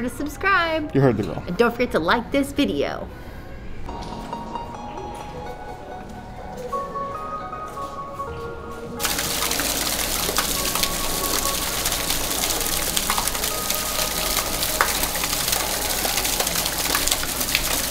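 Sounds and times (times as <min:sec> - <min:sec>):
water trickling down rock wall: 0:09.0 - 0:17.9.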